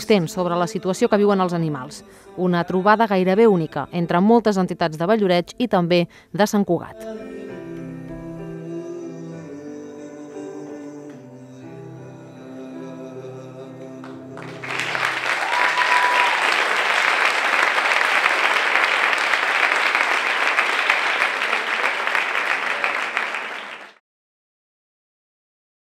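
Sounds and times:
music with held notes: 0:07.0 - 0:15.4
audience applause: 0:14.0 - 0:24.0.

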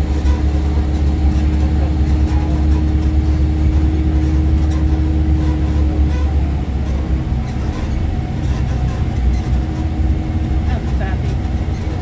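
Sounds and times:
constant hum: 0:00.0 - 0:12.0
low rumble of airliner: 0:00.0 - 0:12.0.

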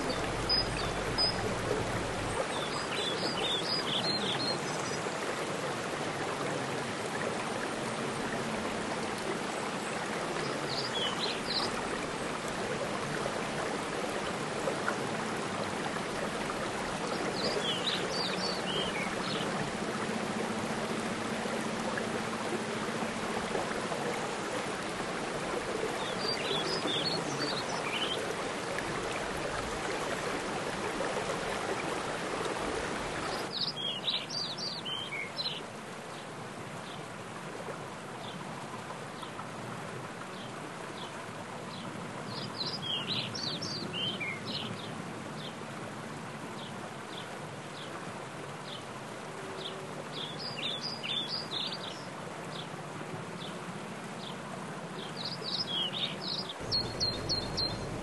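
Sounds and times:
mountain stream and waterfall: 0:00.0 - 0:58.0
rain falling on water: 0:00.0 - 0:58.0
bird chirping: 0:55.5 - 0:58.0.

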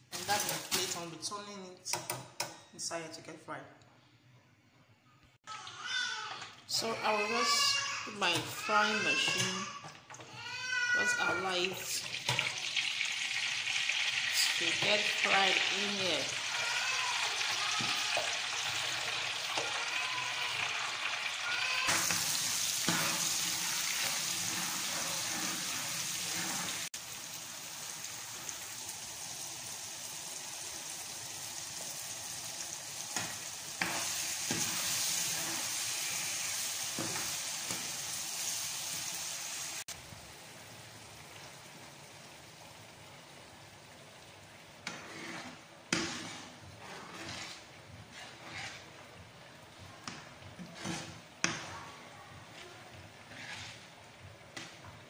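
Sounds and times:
spatula scraping a pan: 0:06.8 - 0:09.8, 0:13.9 - 0:27.0, 0:33.1 - 0:38.6, 0:44.8 - 0:54.8
food sizzling in hot oil: 0:10.7 - 0:51.8.

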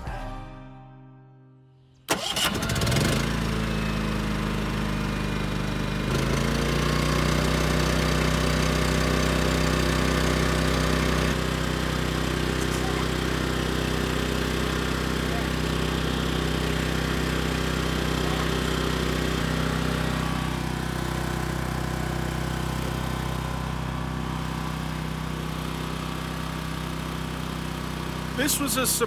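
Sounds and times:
background music: 0:00.0 - 0:01.9
generator engine running: 0:02.1 - 0:29.0.

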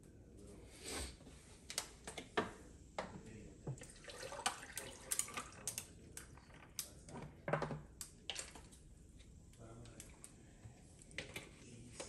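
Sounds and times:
water pouring into plastic cup: 0:03.8 - 0:05.9.

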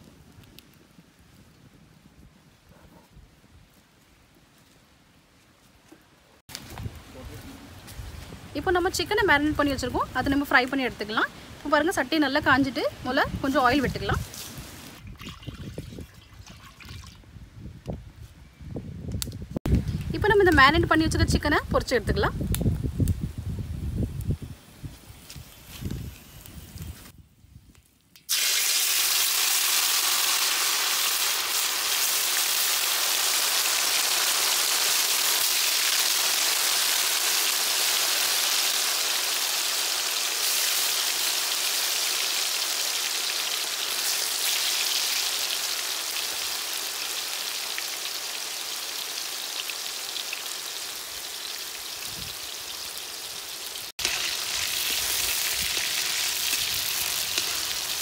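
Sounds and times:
chicken deep-frying in oil: 0:28.1 - 0:58.0.

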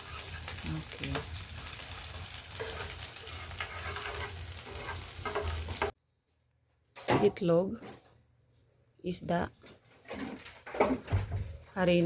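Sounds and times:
fish sizzling in oil: 0:00.0 - 0:06.0.

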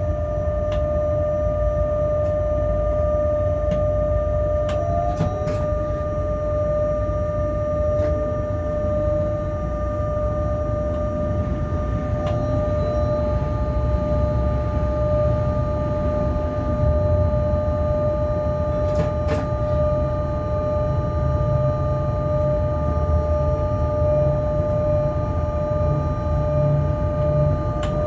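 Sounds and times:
steady high tone: 0:00.0 - 0:28.0
train running rumble: 0:10.6 - 0:17.4.

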